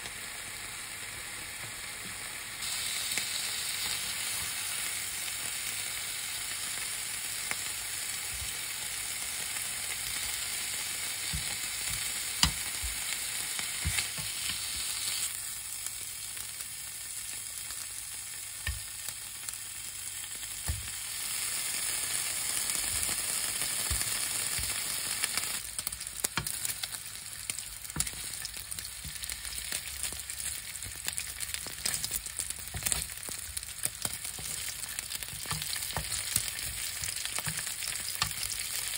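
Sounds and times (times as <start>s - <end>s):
meat sizzling in a frying pan: 0.0s - 38.9s
tongs clicking against pan: 28.0s - 38.9s.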